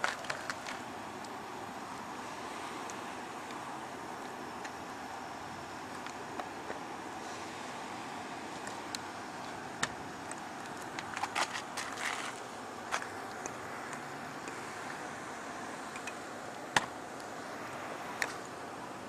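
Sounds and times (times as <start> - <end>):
plastic film clicks and crackles: 0.0 - 0.8
steady hiss: 0.0 - 19.0.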